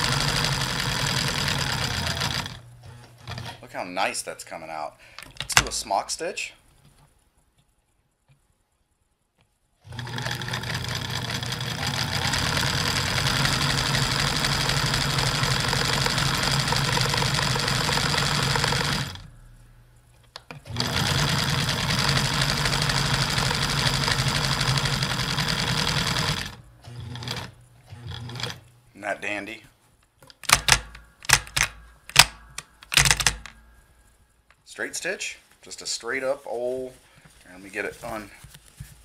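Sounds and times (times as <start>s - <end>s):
electric sewing machine running: 0.0s - 3.5s, 9.9s - 19.3s, 20.7s - 28.6s.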